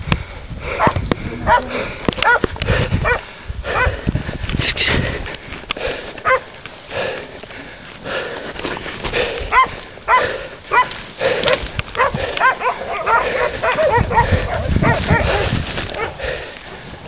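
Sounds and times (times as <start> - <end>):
dogs barking: 0.8 - 4.0, 6.2 - 6.5, 9.5 - 16.3.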